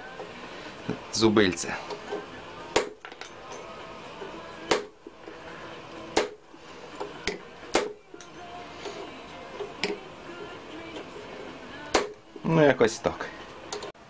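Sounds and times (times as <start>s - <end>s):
hammer striking chisel on steel: 1.9s - 5.1s, 6.1s - 6.4s, 7.0s - 12.5s.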